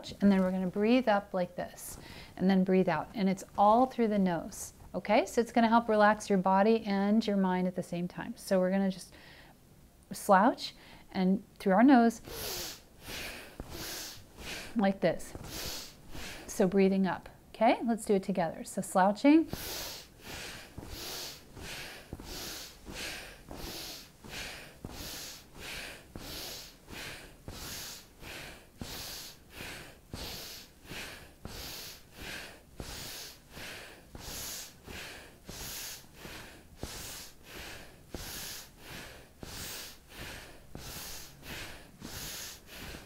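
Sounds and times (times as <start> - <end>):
person sniffing breaths rapidly: 1.9 - 2.4, 12.2 - 16.6, 19.5 - 43.0.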